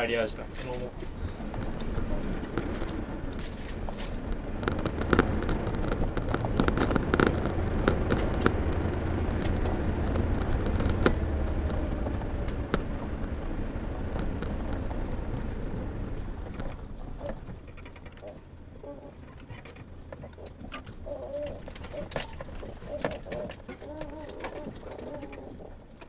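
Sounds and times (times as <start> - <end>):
car engine and road rumble: 0.0 - 26.0
car knocks and rattles over bumps: 0.0 - 26.0.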